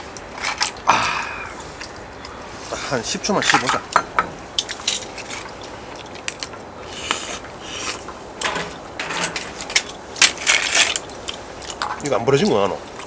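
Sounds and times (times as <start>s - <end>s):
scallop shells scraping and clicking: 0.1s - 0.8s, 3.4s - 12.1s.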